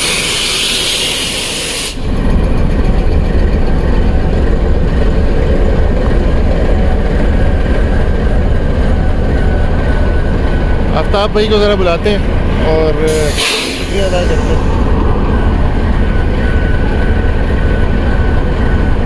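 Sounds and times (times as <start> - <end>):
loud hiss: 0.0 - 2.0, 13.1 - 14.6
locomotive engine idling: 0.0 - 19.0.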